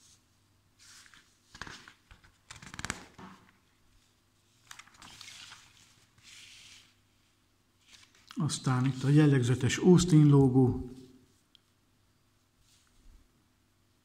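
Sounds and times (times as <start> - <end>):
magazine pages rustling: 0.8 - 7.1, 7.8 - 9.2.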